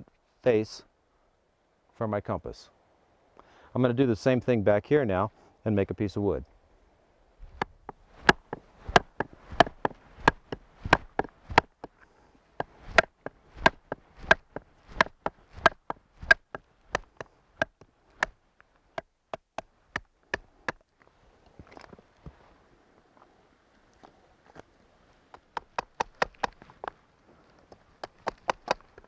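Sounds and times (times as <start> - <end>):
handling of split wood: 7.4 - 22.4, 25.3 - 29.0.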